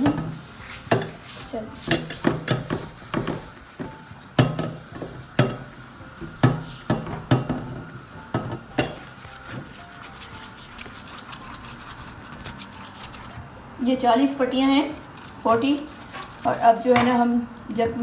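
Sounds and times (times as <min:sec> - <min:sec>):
pastry rustling: 0:08.8 - 0:13.5, 0:14.3 - 0:16.8.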